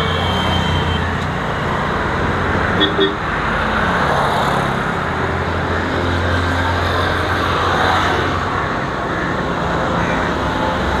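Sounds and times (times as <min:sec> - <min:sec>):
motorbikes and cars passing: 0:00.0 - 0:11.0.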